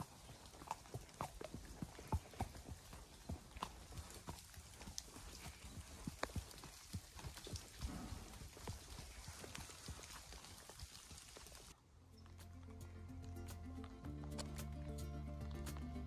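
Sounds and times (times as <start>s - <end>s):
horse hooves on wet dirt: 0.0s - 16.0s.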